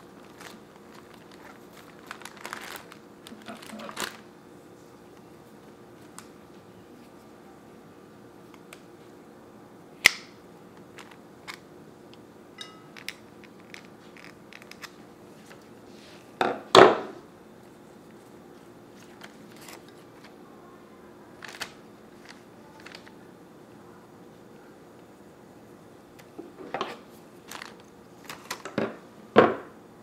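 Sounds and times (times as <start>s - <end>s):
stems clicking and rustling: 0.1s - 4.2s, 12.9s - 15.6s, 21.4s - 23.2s, 26.2s - 28.9s.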